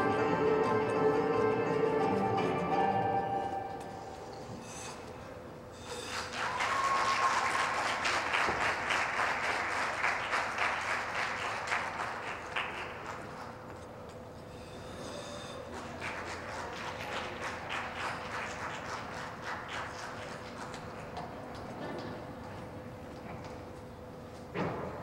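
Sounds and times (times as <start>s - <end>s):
music: 0.0s - 4.4s
crowd applause: 6.0s - 13.6s, 15.7s - 20.7s.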